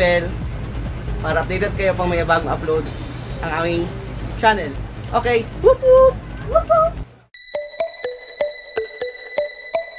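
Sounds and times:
ticking beat: 0.0s - 9.9s
steady high tones: 7.4s - 9.9s
two-note electronic melody: 7.4s - 9.9s.

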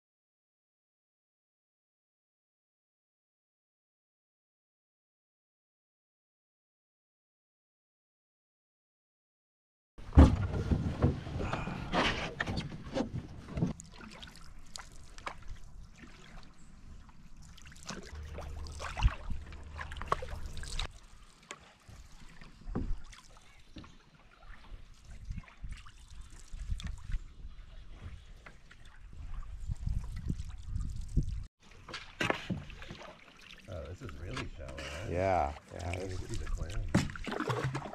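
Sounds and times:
paddles splashing in water: 10.0s - 37.9s.

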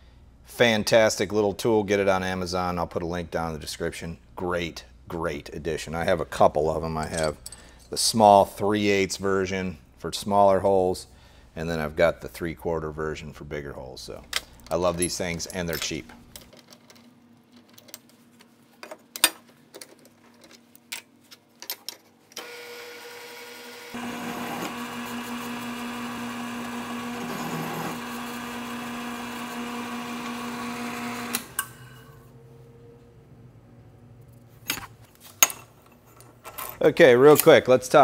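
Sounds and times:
metal parts clicking: 14.2s - 18.2s, 18.8s - 22.2s
milling machine spindle running: 22.4s - 31.6s.

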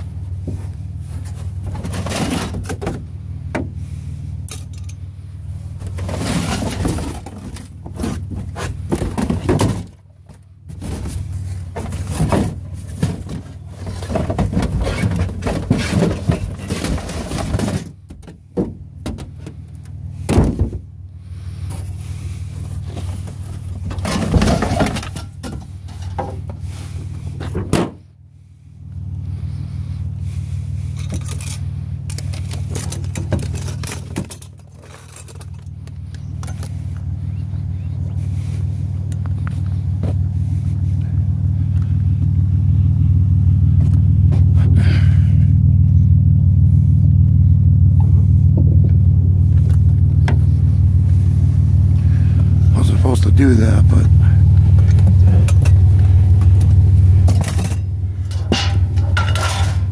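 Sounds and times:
steady low rumble: 0.0s - 59.9s
cardboard scraping plastic bin: 5.9s - 9.9s, 10.7s - 17.9s.

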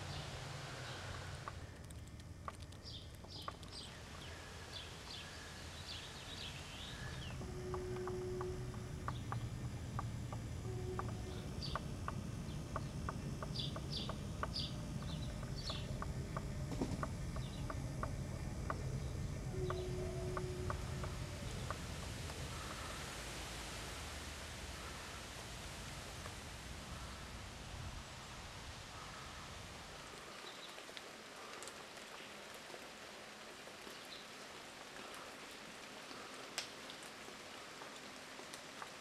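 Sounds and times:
birds chirping: 0.0s - 1.8s, 2.5s - 23.2s
low outdoor rumble: 0.0s - 33.6s.

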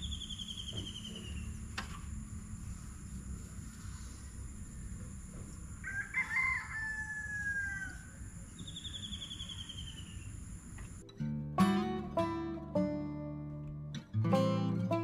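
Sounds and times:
rooster crowing: 5.7s - 8.4s
small bird trilling: 8.6s - 10.4s.

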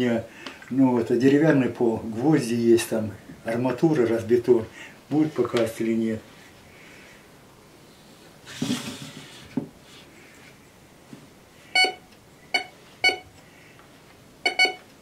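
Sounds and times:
metal detector beeps: 11.7s - 13.3s, 14.4s - 14.8s.

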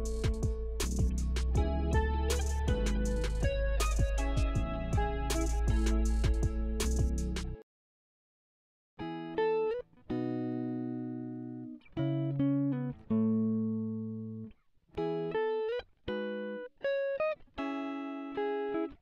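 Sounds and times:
plucked guitar music: 0.0s - 7.6s, 9.0s - 19.0s.

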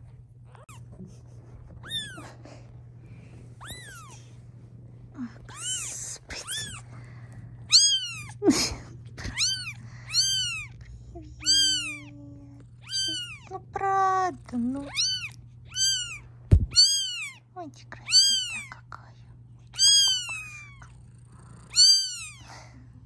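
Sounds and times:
kitten mewing: 0.5s - 1.0s, 1.8s - 2.4s, 3.6s - 4.3s, 5.3s - 6.9s, 7.7s - 13.5s, 14.8s - 17.4s, 18.0s - 18.7s, 19.7s - 21.0s, 21.6s - 22.6s.

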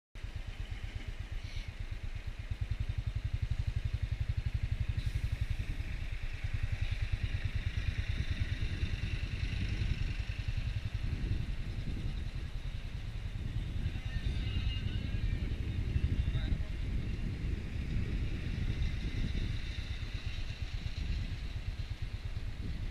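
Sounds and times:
motorcycle engine riding: 0.2s - 22.9s.

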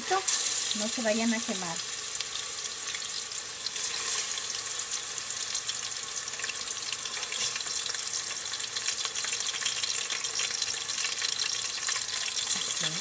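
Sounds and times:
pork frying in hot oil: 0.0s - 13.0s.

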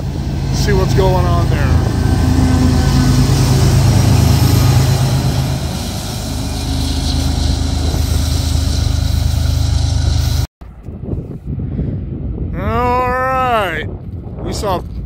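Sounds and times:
locomotive engine drone: 0.0s - 10.5s
train rolling on rails: 0.0s - 10.5s.

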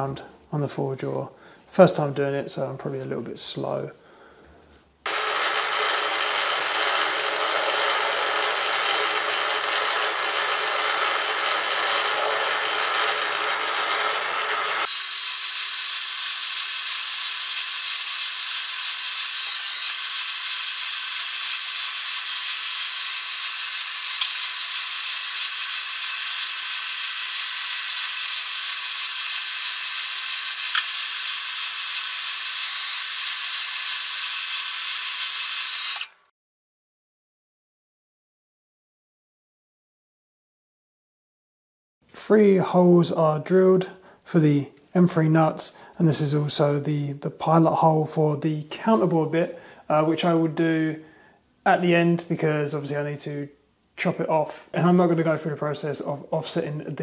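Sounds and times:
metal lathe drilling: 5.1s - 36.2s.

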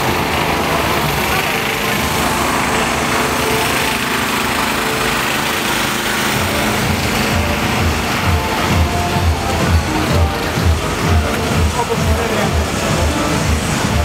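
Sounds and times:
engine running steadily: 0.0s - 14.0s
thumping music beat: 6.2s - 14.0s.

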